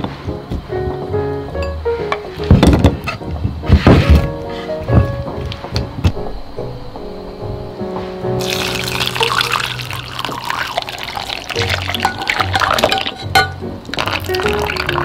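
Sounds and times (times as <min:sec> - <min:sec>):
background music: 0:00.0 - 0:15.0.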